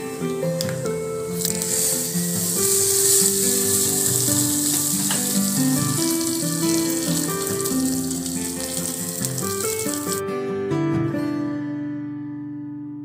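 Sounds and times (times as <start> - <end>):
spices sizzling in hot oil: 0.0 - 10.2
background music: 0.0 - 11.4.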